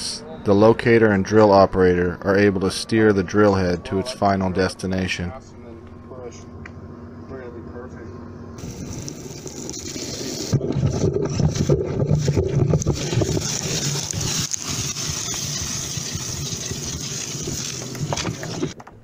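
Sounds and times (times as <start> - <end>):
drill rig engine rumbling: 0.0 - 18.8
drilling fluid hissing: 8.6 - 18.8.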